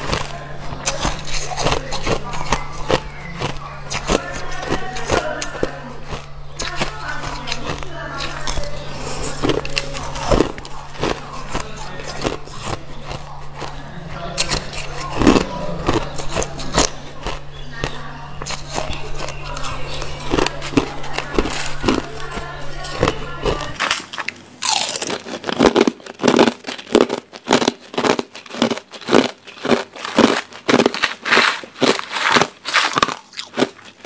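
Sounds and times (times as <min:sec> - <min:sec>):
ice crunched between teeth: 0:00.0 - 0:34.0.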